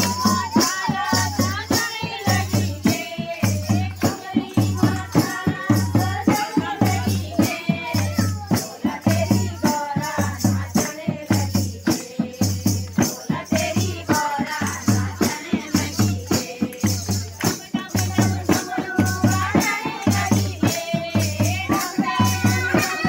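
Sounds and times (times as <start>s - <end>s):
women singing devotional song: 0.0s - 23.0s
hand clapping: 16.2s - 20.0s.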